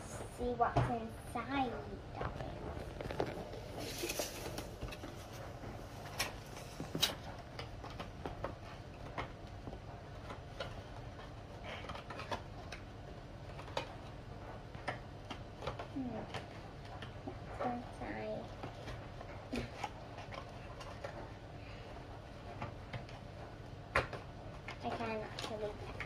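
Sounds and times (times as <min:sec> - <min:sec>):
cardboard rustle: 0:02.3 - 0:08.8.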